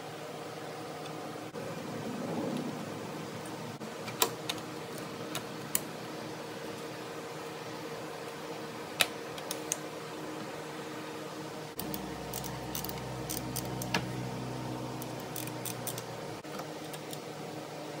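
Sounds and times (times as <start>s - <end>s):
steady background hum: 0.0s - 18.0s
deeper hum: 11.8s - 16.4s.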